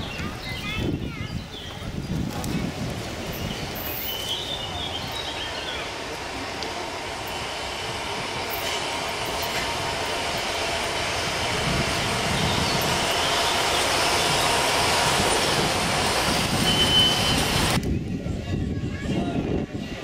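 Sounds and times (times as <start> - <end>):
steam locomotive running on track: 0.0 - 20.0
high squeal: 16.2 - 17.8.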